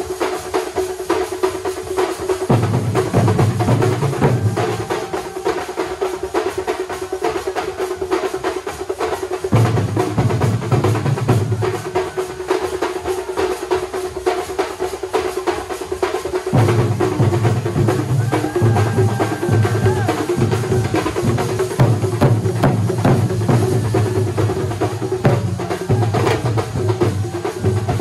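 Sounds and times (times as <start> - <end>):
stick-beaten drums playing: 0.0 - 28.0
heavy bass drumming: 2.5 - 5.3, 16.5 - 28.0.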